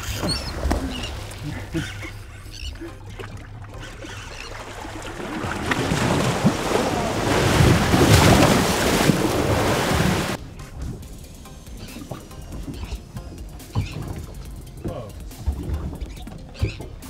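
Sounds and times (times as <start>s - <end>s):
water splashing and rushing: 0.0s - 17.0s
fish thrashing at surface: 3.2s - 10.4s.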